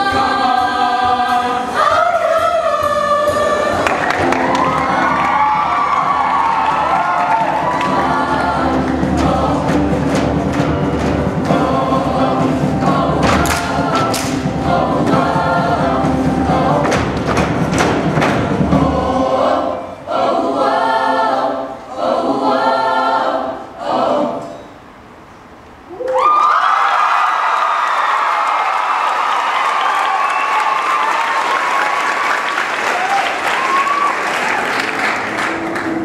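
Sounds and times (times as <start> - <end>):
choir singing: 0.0 - 24.9
accompaniment with steady beat: 2.8 - 19.6.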